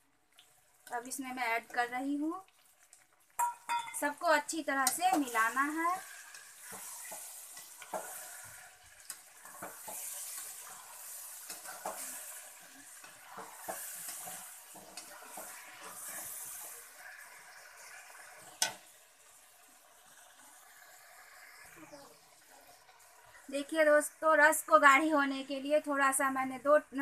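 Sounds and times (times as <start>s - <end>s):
masala sizzling: 0.0s - 27.0s
steel spatula scraping a pan: 5.1s - 18.8s.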